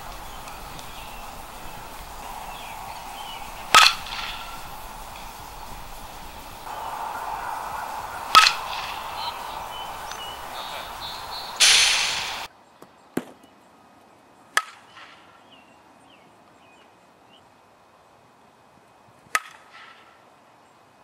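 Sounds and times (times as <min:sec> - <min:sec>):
bat cracking balls: 0:00.0 - 0:12.5, 0:13.2 - 0:13.5
loud rush of noise: 0:00.0 - 0:12.5.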